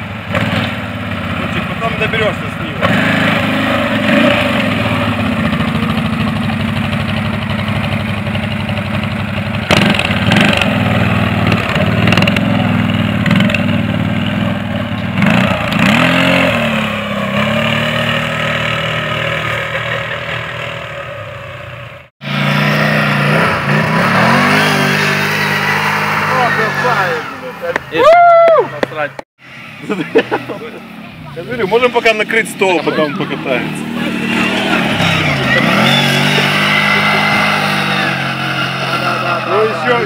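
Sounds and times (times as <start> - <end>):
atv engines revving: 0.0 - 40.0
vehicles pushing through grass: 29.4 - 40.0.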